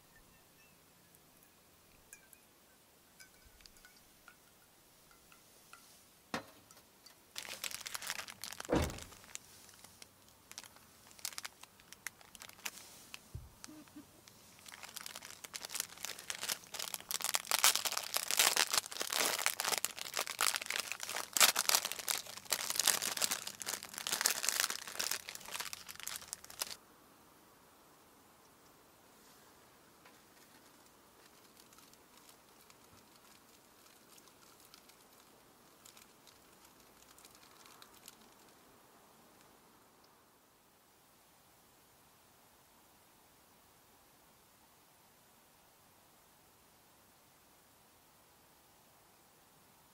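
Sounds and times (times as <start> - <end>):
plastic bag crinkling: 7.3 - 26.8, 30.3 - 38.6
soft thump: 8.7 - 9.1.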